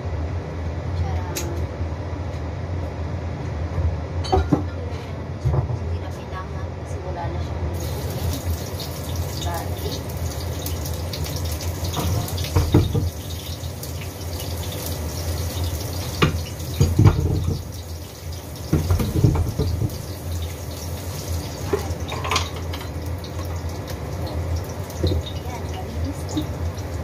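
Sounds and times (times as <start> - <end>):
kitchenware knocks and clinks: 4.2 - 4.8, 12.0 - 13.1, 16.2 - 17.7, 18.7 - 20.0, 21.6 - 23.0
water running into sink: 7.8 - 27.0.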